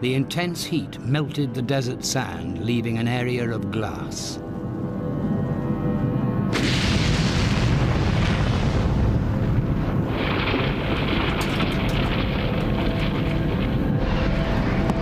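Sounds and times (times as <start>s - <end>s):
bomb blast deep rumble: 6.4s - 15.0s
sharp crackles: 6.5s - 15.0s.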